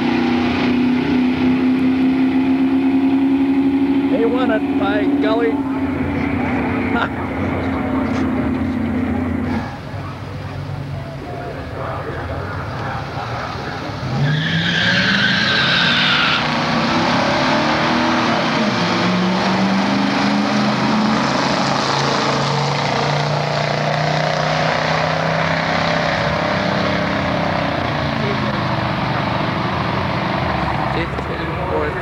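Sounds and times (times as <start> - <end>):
car engines revving: 0.0 - 32.0
tire squeal: 13.2 - 31.0.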